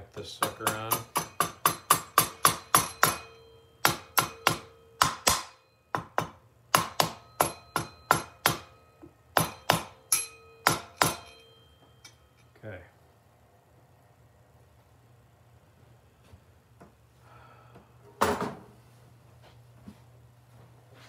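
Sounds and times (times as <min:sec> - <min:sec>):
rubber mallet tapping metal: 0:00.4 - 0:12.2.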